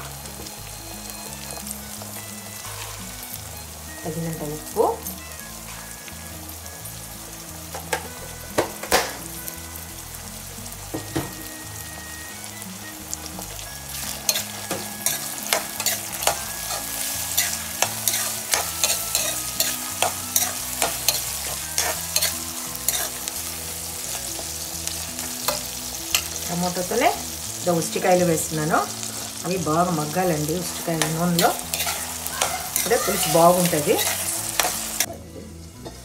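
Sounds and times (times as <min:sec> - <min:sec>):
vegetables sizzling in oil: 0:00.0 - 0:36.0
metal spoon scraping a pan: 0:13.4 - 0:26.5, 0:30.7 - 0:35.1.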